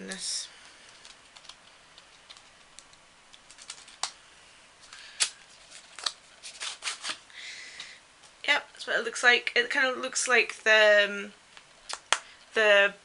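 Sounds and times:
sharp snaps: 0:11.8 - 0:12.3.

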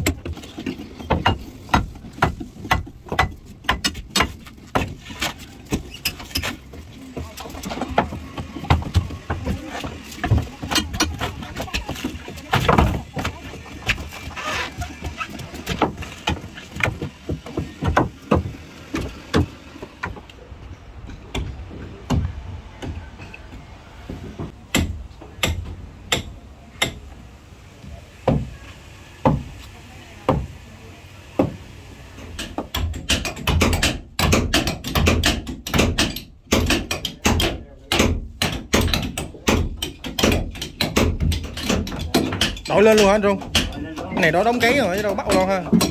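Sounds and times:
hammer blows on wooden planks: 0:32.4 - 0:45.9.

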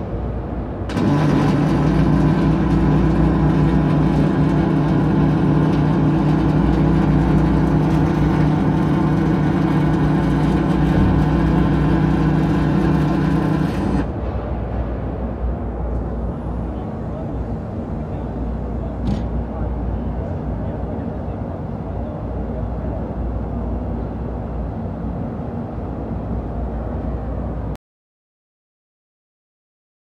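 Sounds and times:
welding arc buzzing and crackling: 0:00.9 - 0:14.1.

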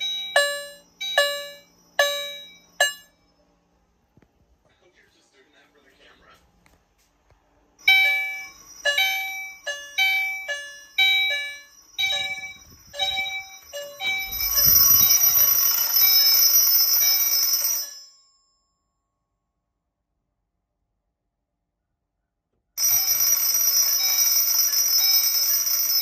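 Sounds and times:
fire alarm chime striking: 0:00.0 - 0:03.2, 0:07.8 - 0:18.1, 0:22.8 - 0:26.0
high-pitched electric alarm ringing: 0:00.0 - 0:03.4, 0:07.8 - 0:18.2, 0:22.8 - 0:26.0.

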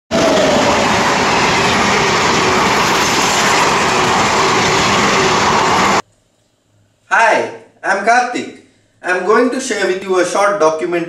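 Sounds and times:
train wheels on rails: 0:00.1 - 0:06.0.

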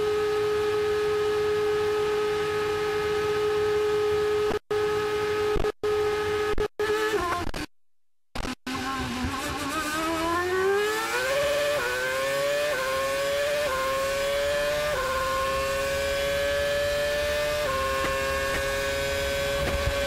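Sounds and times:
engine upshifts: 0:00.0 - 0:07.7, 0:08.4 - 0:20.0
racing car engine accelerating: 0:08.7 - 0:20.0.

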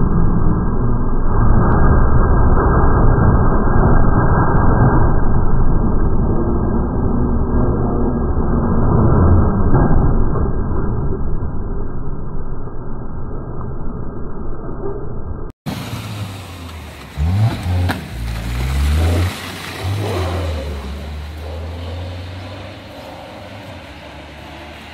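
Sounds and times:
dull traffic noise: 0:15.6 - 0:24.9
car engine revving: 0:15.7 - 0:24.9.

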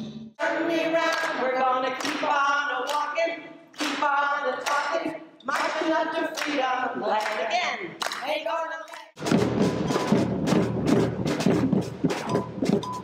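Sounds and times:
group singing unaccompanied: 0:00.4 - 0:08.0
hand claps: 0:02.0 - 0:03.1, 0:03.8 - 0:06.6, 0:07.2 - 0:07.4, 0:08.0 - 0:09.1.

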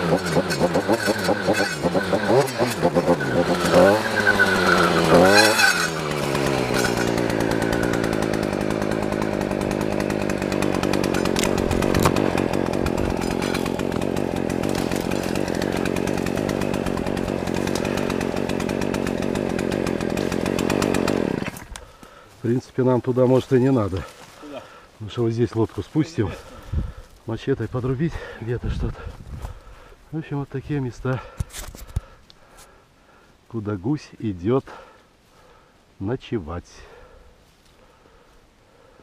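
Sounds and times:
engine revving: 0:00.0 - 0:21.6.

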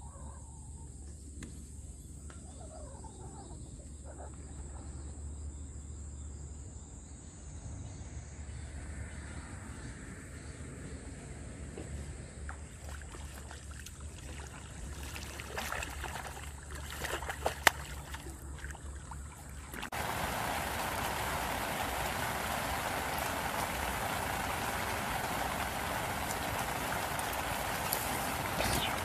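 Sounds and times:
rain falling on a pond: 0:12.8 - 0:29.0.

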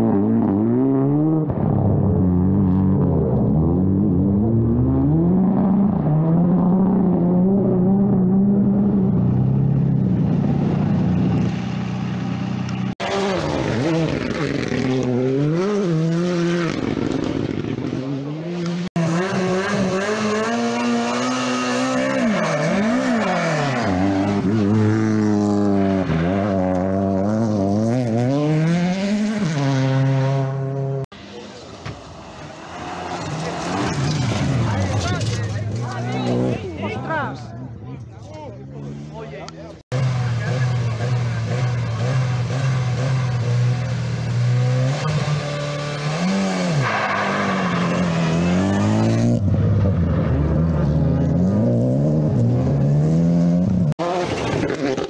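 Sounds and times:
rally car engines at full throttle: 0:00.0 - 0:55.0.

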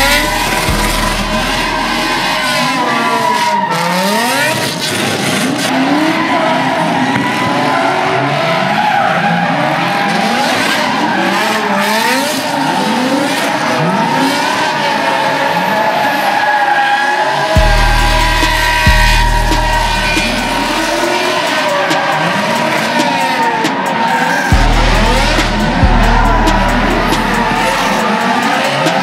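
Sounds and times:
tyres screeching: 0:00.0 - 0:06.4, 0:15.7 - 0:29.0
car engines revving: 0:00.0 - 0:29.0.

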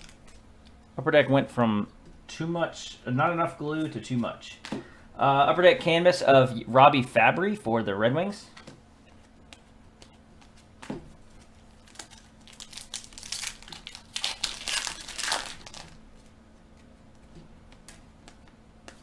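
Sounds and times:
foil wrapper crinkling and tearing: 0:11.4 - 0:16.1.

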